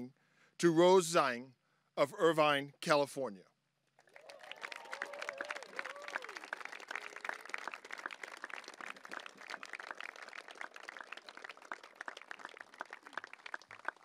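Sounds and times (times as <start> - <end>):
audience applauding: 4.0 - 14.0.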